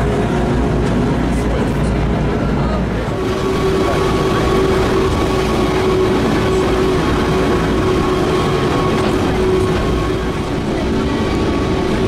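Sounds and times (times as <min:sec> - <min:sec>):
railcar engine rumble: 0:00.0 - 0:12.0
steady whine: 0:00.0 - 0:12.0.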